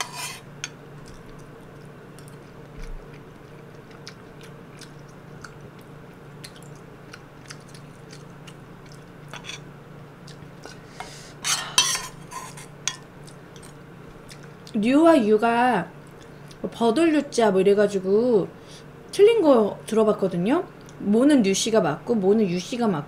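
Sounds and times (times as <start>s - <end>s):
steady low hum: 0.0s - 23.0s
quiet chewing: 1.0s - 10.9s, 12.9s - 14.8s, 16.0s - 16.6s.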